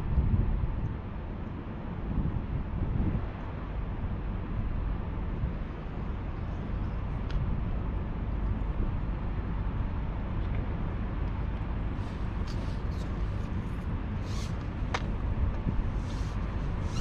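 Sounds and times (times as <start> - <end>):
hiss: 14.2 - 14.6.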